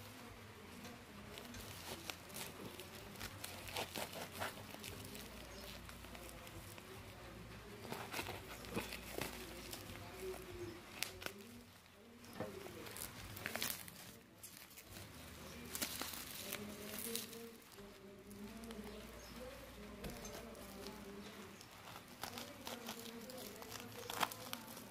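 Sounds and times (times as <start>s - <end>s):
paper and bubble wrap crinkling: 0.0s - 24.9s.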